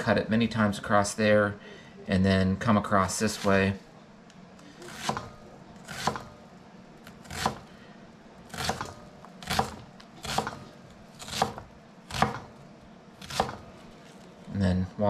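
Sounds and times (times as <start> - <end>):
knife dicing onion on cutting board: 4.9 - 6.4, 7.2 - 7.6, 8.5 - 10.6, 11.2 - 12.5, 13.2 - 13.6.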